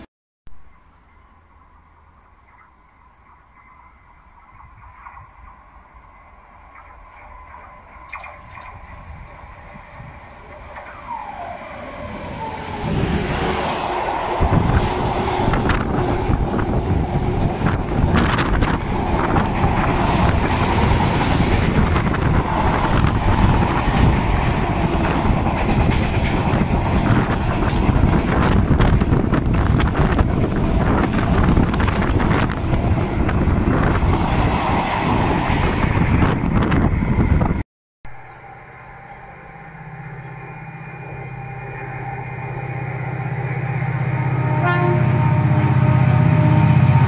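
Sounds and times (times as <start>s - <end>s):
freight train passing: 0.7s - 47.0s.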